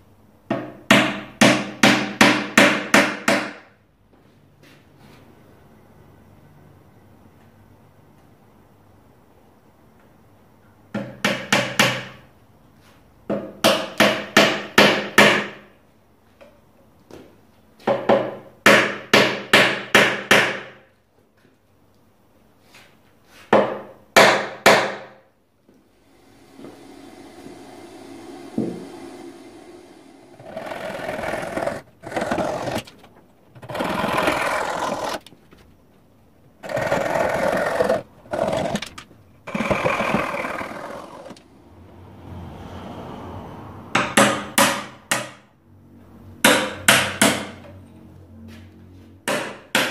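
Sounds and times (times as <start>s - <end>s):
rasping cutting strokes on wood: 26.2s - 32.9s, 33.6s - 35.3s
hammer tapping wooden wedges: 49.3s - 49.9s.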